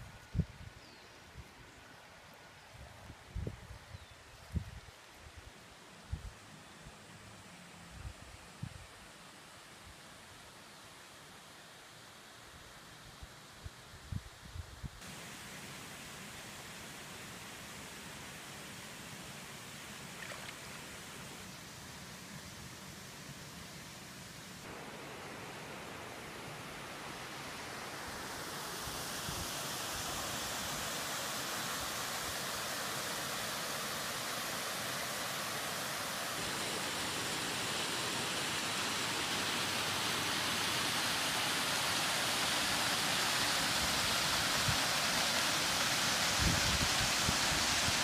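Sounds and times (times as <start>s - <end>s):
waterfall rushing: 24.0s - 48.0s.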